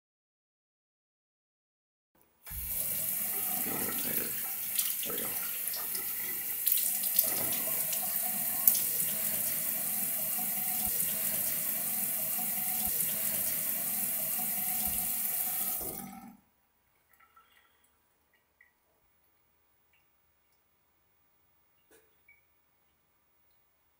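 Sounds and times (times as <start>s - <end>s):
faucet running: 2.5s - 16.4s.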